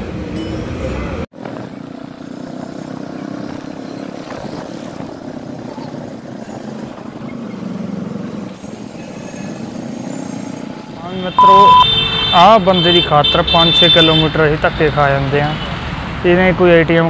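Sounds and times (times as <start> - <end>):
traffic noise: 0.0 - 17.0.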